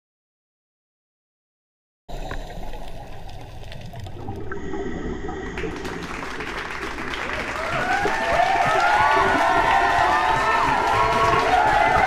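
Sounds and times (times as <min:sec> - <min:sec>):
underwater clicks and crackles: 0:02.1 - 0:09.0
underwater water rush: 0:02.1 - 0:12.0.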